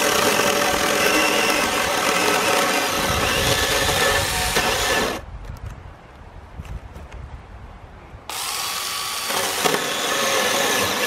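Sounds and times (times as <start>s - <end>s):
mini chainsaw cutting wood: 0.0s - 5.2s, 8.3s - 11.0s.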